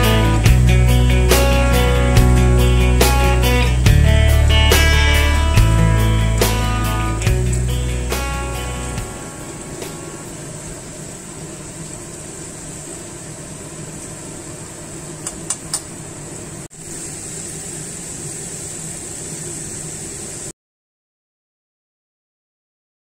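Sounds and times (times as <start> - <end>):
food sizzling in hot oil: 16.0 - 20.5.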